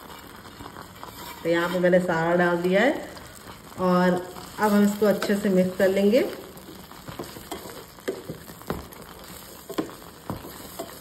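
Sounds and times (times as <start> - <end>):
low sizzle in pan: 0.0 - 11.0
spatula knocking and scraping pan: 4.8 - 5.6, 6.7 - 11.0.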